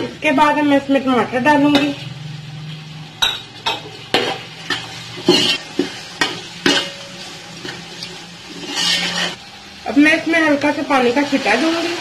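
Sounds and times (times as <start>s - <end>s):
faint sizzle: 0.0s - 12.0s
metal spoon scraping a pot: 3.2s - 9.4s.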